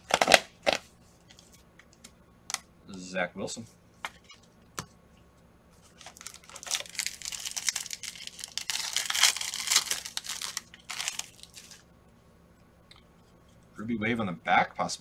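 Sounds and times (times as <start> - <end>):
foil pack tearing and crinkling: 0.0 - 0.8, 6.0 - 11.8.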